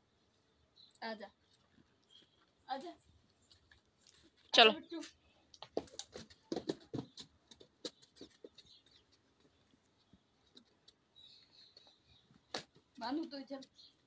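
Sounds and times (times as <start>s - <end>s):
hooves tapping on stone floor: 5.0s - 14.0s.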